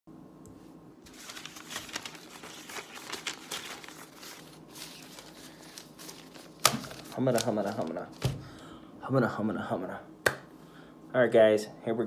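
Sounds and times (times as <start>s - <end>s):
paper rustling: 1.0s - 8.4s.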